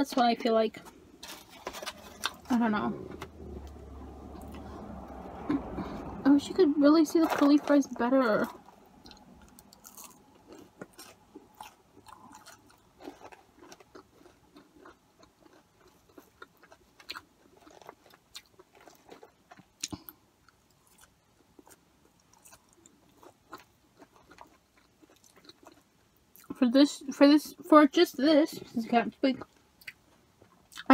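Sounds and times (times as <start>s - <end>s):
faint chewing: 7.2s - 26.6s.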